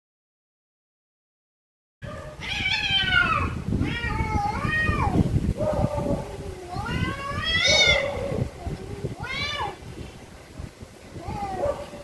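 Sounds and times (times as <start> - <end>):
cats yowling: 2.0 - 9.8, 11.2 - 12.0.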